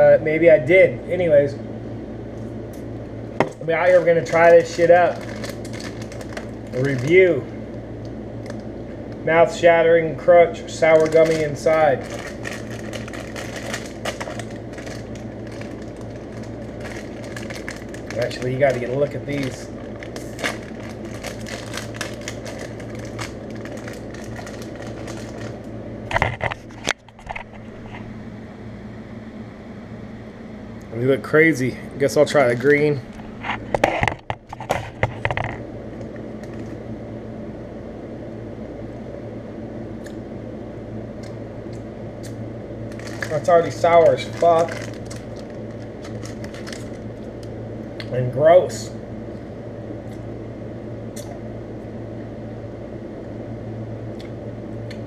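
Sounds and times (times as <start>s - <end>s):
steady low hum: 0.0s - 55.0s
plastic bag crinkling: 3.7s - 7.4s, 10.7s - 27.8s, 42.9s - 47.5s.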